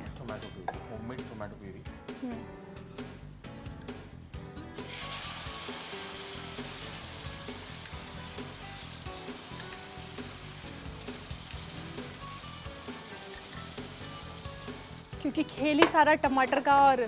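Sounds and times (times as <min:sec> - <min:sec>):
tomato puree sizzling in a frying pan: 0:04.8 - 0:17.0.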